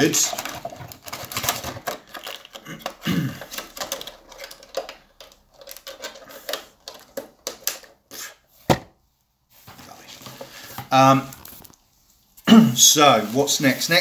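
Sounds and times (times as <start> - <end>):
plastic packaging crinkling: 0.0 - 8.0, 10.3 - 11.8.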